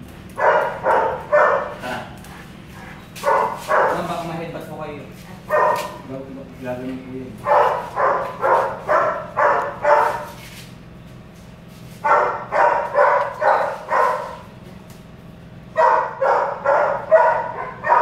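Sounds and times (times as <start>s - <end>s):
dog barking: 0.4s - 4.3s, 5.4s - 6.1s, 7.4s - 10.4s, 12.0s - 14.5s, 15.7s - 18.0s.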